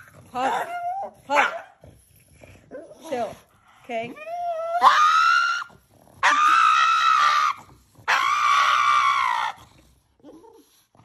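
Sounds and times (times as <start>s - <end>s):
dog screaming high-pitched: 4.6s - 9.6s.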